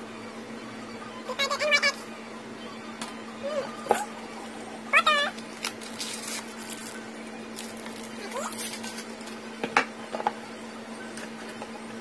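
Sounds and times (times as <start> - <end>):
plastic wrapping crinkling: 5.4 - 9.4.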